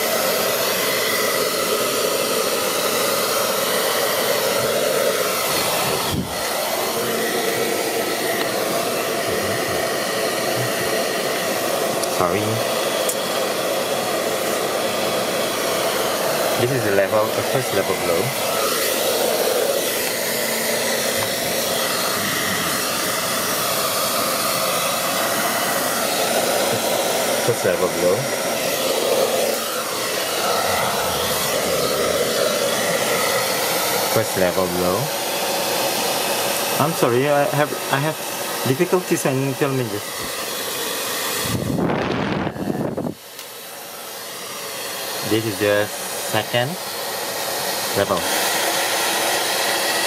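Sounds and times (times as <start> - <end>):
hair dryer blowing air: 0.0 - 50.0.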